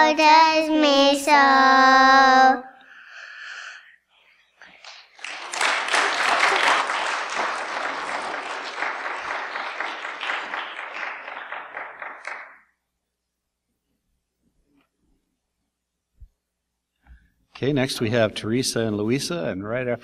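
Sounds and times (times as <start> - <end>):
congregation applauding: 4.6 - 12.8.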